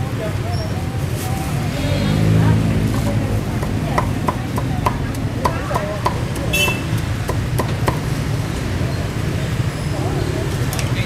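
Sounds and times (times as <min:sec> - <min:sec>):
cleaver chopping on wooden block: 0:03.6 - 0:08.1.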